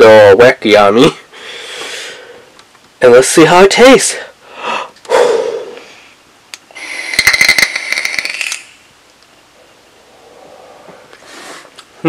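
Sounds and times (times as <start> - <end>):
breathy exhale: 1.3 - 2.5, 4.4 - 7.2, 10.0 - 11.7
e-cigarette coil crackling: 6.5 - 9.3.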